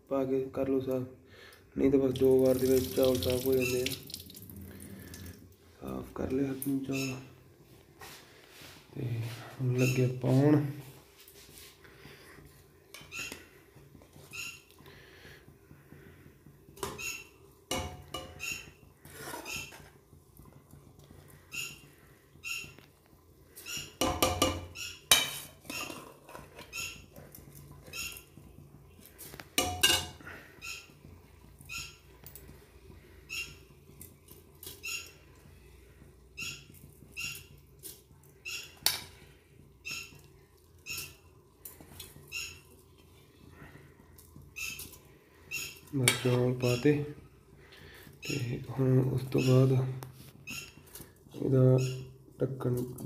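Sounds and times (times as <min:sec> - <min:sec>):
metal spoon scraping bowl: 0:18.1 - 0:20.0, 0:24.4 - 0:28.1.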